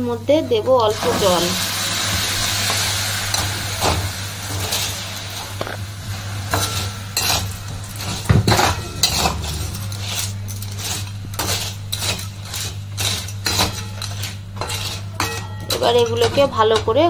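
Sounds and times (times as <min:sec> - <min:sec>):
steady low hum: 0:03.2 - 0:17.0
spatula scraping metal pan: 0:06.5 - 0:16.9.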